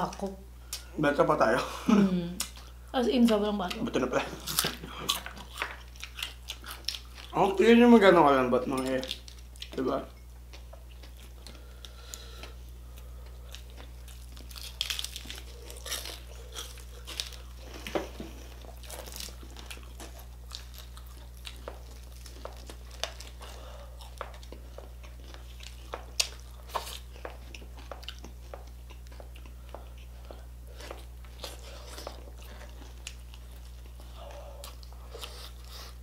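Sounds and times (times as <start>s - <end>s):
crunching and chewing: 3.3s - 7.7s, 8.6s - 36.0s
crispy skin crackling: 13.5s - 28.4s.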